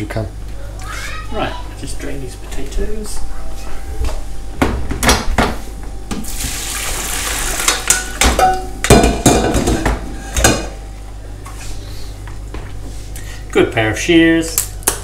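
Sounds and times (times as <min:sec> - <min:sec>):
water pouring into colander: 0:06.4 - 0:07.7.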